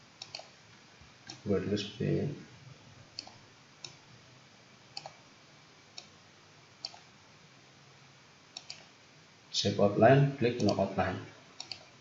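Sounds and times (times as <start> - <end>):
faint low hum: 0.0 - 12.0
computer mouse clicks: 0.2 - 0.6, 1.2 - 1.4, 3.1 - 4.0, 4.9 - 5.2, 5.9 - 6.1, 6.8 - 7.1, 8.5 - 8.9, 10.6 - 10.9, 11.6 - 12.0.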